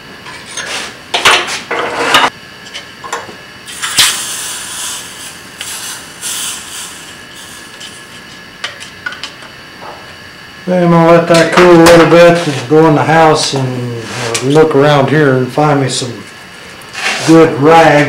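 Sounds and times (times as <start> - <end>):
hot metal hissing in liquid: 3.7 - 8.2.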